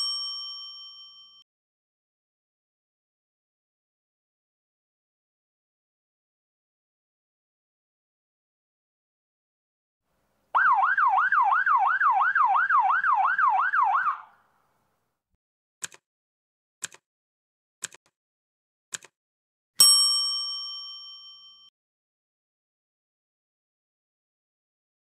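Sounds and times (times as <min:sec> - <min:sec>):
bell-like ding: 0:00.0 - 0:01.4, 0:19.8 - 0:21.7
police siren yelping: 0:10.5 - 0:14.4
timer ticking: 0:16.8 - 0:17.0, 0:17.8 - 0:18.1.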